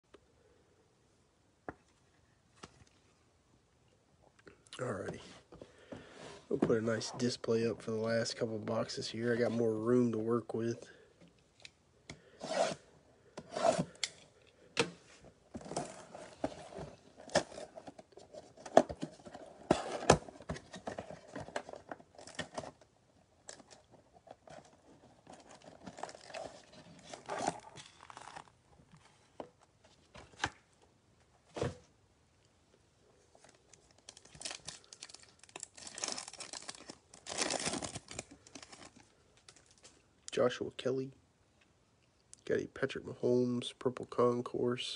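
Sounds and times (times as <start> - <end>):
foil pack crinkling: 25.3 - 28.5, 33.7 - 40.0.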